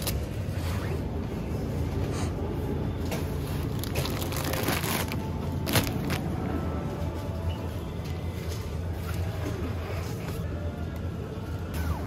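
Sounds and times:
plastic packaging crinkling: 3.6 - 6.4.

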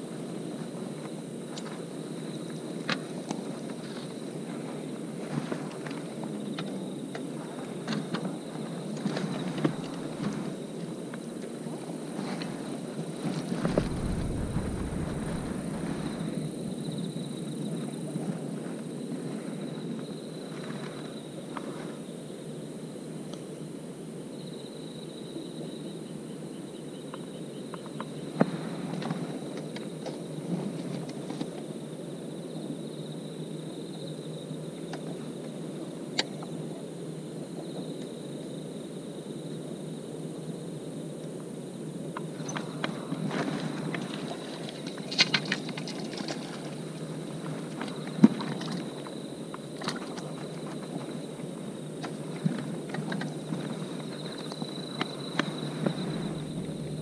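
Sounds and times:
low outdoor rustle: 0.0 - 22.6, 27.8 - 38.9, 41.1 - 57.0
crickets trilling: 0.0 - 57.0
low rumbling noise: 13.6 - 17.2, 55.6 - 57.0
loud thump: 13.7 - 16.4.

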